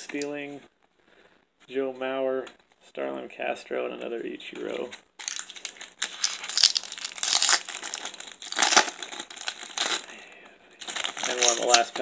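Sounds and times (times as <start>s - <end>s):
foil wrapper crinkling and tearing: 5.2s - 12.0s.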